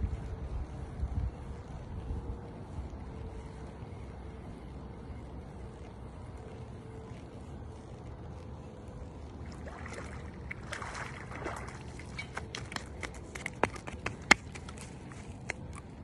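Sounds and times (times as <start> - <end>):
fish splashing in water: 9.4 - 12.9.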